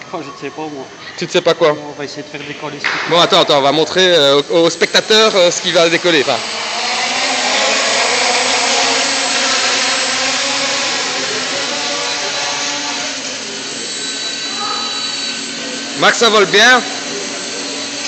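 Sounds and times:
quadcopter motors whirring: 0.0 - 18.0.

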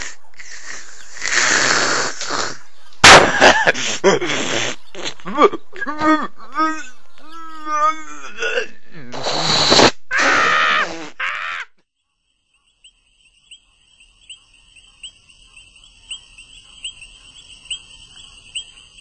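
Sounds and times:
person screaming: 10.1 - 11.7
crickets chirping: 11.8 - 19.0.

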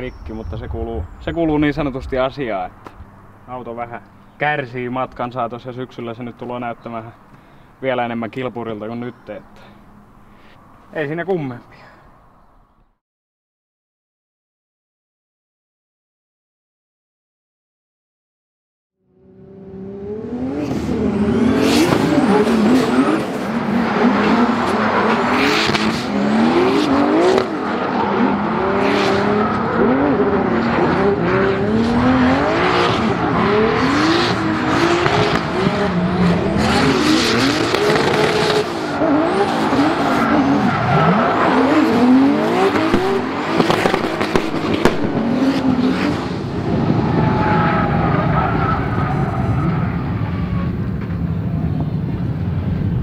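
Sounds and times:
car engine revving: 19.2 - 50.6
tyres screeching on tarmac: 36.2 - 44.9, 47.0 - 50.2.

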